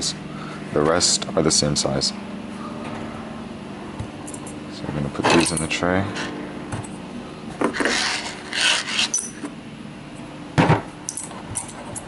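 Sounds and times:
high metallic ring: 2.5 - 3.1, 9.0 - 9.5.

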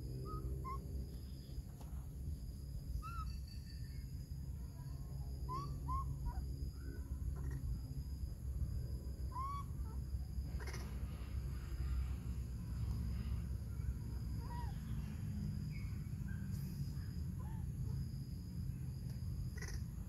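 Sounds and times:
steady low rumble: 0.0 - 20.0
baby monkey coo calls: 0.2 - 0.8, 3.0 - 3.8, 4.8 - 7.8, 9.2 - 11.0, 14.3 - 15.1, 19.5 - 20.0.

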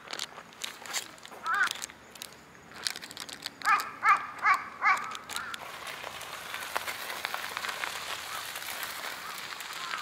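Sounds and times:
crow cawing: 1.4 - 1.8, 3.6 - 5.6, 8.2 - 8.5, 9.2 - 10.0.

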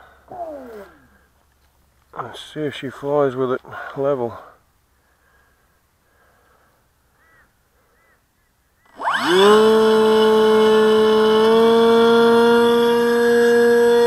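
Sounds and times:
model plane motor whining: 8.8 - 14.0.

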